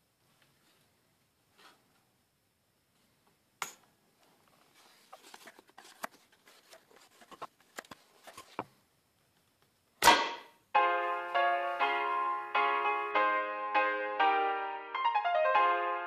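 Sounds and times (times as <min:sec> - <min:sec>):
loud gunshot: 0:10.0 - 0:10.6
piano music: 0:10.7 - 0:16.0.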